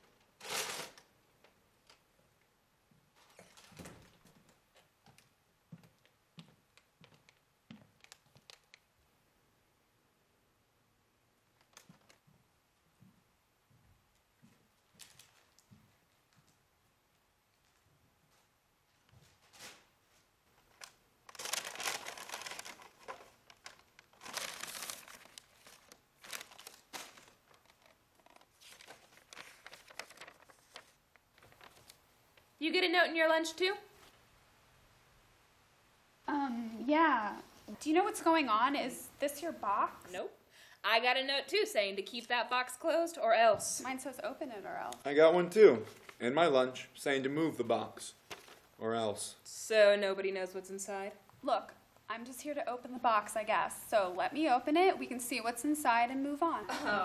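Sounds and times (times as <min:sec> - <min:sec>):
paper note rustling: 0:00.4 - 0:01.0, 0:20.8 - 0:32.0, 0:48.2 - 0:48.7
paper bag crinkling: 0:00.4 - 0:01.1, 0:15.0 - 0:15.7, 0:20.7 - 0:32.0, 0:48.2 - 0:48.7
faint footsteps on hard floor: 0:02.9 - 0:08.5, 0:12.2 - 0:16.6.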